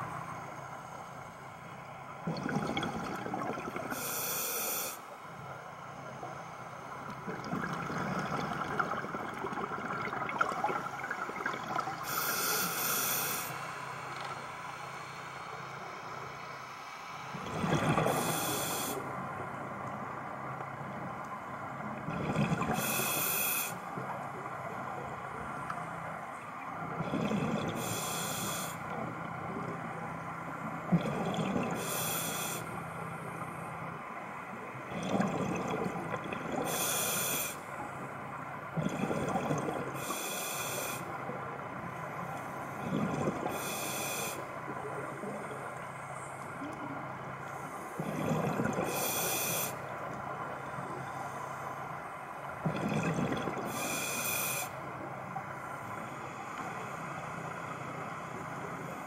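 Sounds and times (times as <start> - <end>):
exhaust bubbles gurgling: 2.2 - 4.0, 7.1 - 12.4, 22.0 - 22.9, 26.8 - 28.0, 34.8 - 36.8, 38.7 - 40.0, 42.8 - 43.7, 48.0 - 49.2, 52.6 - 53.8.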